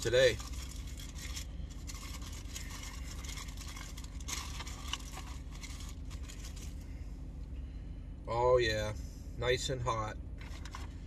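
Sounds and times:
paper wrapper crinkling: 0.0s - 6.8s
steady low hum: 0.0s - 11.0s.

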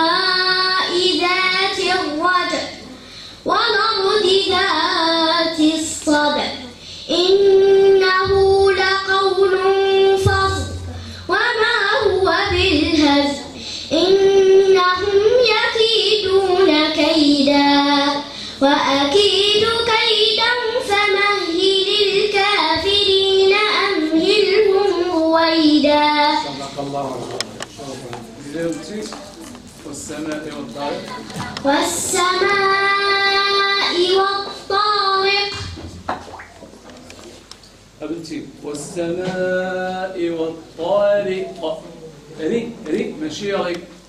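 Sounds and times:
girl chanting recitation: 0.0s - 26.6s, 31.3s - 35.8s.

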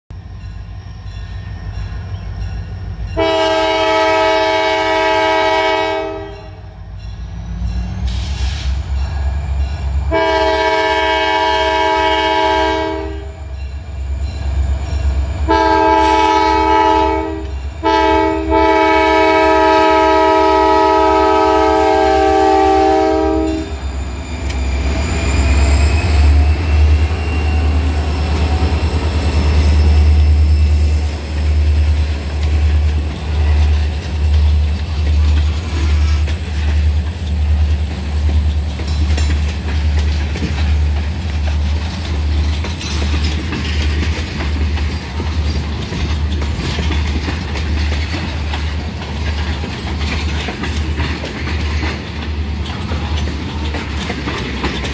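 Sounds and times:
diesel locomotive horn: 3.1s - 6.8s, 8.0s - 13.6s, 15.4s - 31.0s.

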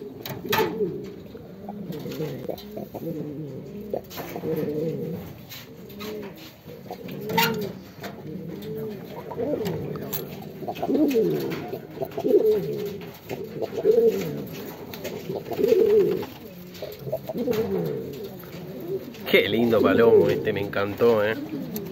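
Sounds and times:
pigeons cooing: 0.0s - 21.9s.

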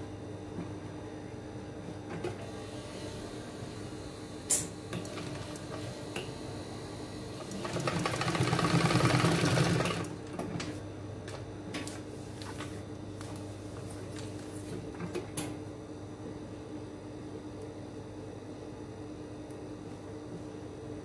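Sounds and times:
sewing machine stitching: 7.4s - 10.1s.

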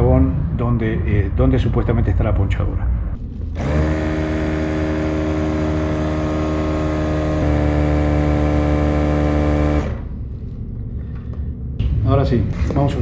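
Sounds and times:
electric tyre compressor running: 3.5s - 10.2s.

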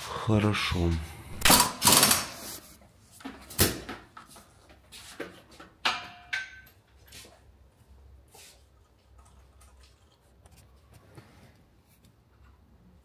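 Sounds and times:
metal tools knocking and clinking: 5.8s - 7.0s.

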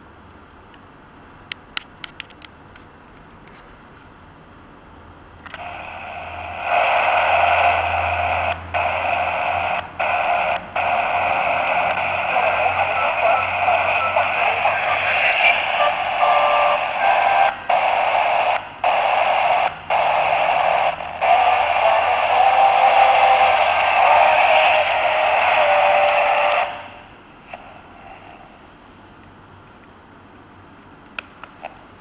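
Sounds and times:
radio static hiss: 5.6s - 28.6s.

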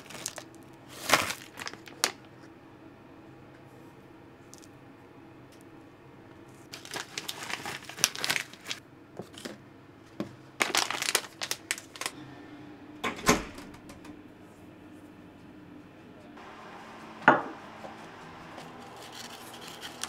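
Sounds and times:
packaging crinkling: 0.0s - 2.3s, 6.7s - 9.6s, 10.6s - 12.2s, 18.8s - 20.0s.

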